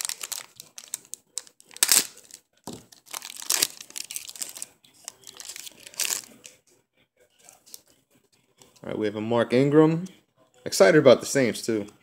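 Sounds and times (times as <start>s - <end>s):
foil wrapper tearing and crinkling: 0.0s - 6.5s.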